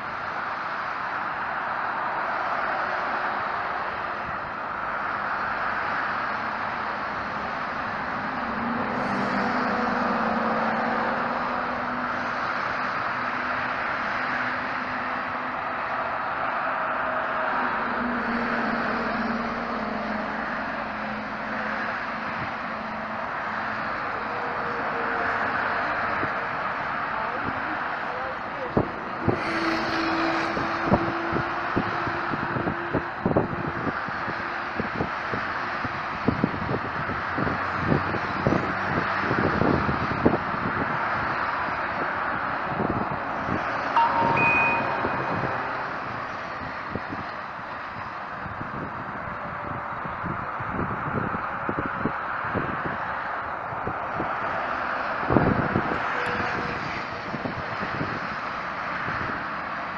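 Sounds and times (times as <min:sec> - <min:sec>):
low lorry engine hum: 0:00.0 - 0:59.9
tyre rush of passing traffic: 0:00.0 - 0:59.9
steady drone: 0:43.9 - 0:46.6.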